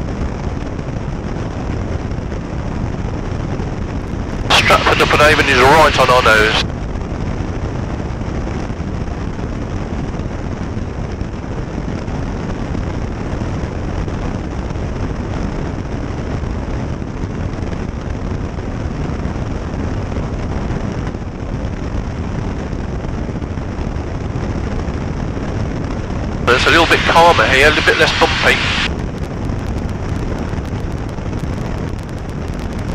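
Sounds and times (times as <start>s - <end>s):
airplane engine and propeller drone: 0.0s - 32.9s
airflow over airframe: 4.1s - 6.6s, 26.4s - 32.9s.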